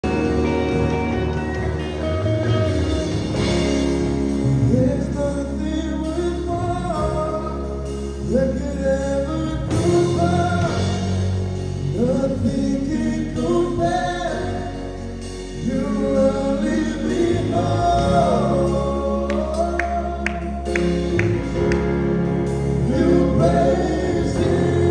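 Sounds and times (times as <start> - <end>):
live band playing slow song: 0.0 - 24.9
men singing: 4.6 - 20.7, 22.7 - 24.9.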